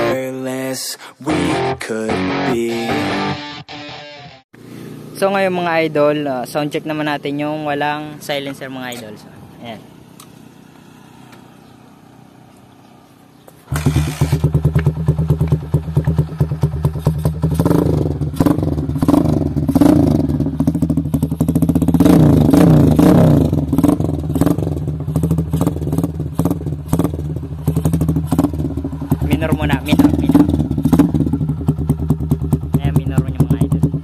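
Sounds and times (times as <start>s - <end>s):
motorcycle engine revving: 4.6s - 7.8s, 13.5s - 34.0s.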